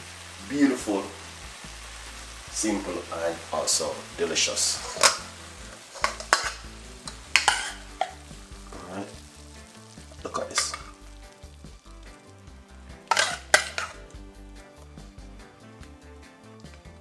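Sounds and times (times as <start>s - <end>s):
cooked vegetables rustling: 0.2s - 12.3s, 13.0s - 14.2s
metal utensil scraping pan and plate: 4.8s - 8.2s, 10.3s - 11.0s, 13.1s - 14.0s.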